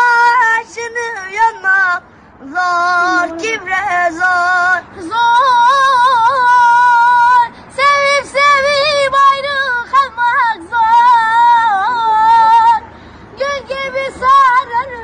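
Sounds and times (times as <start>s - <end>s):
boy singing unaccompanied: 0.0s - 15.0s
breaths: 2.0s - 2.4s, 7.5s - 7.8s, 12.8s - 13.4s.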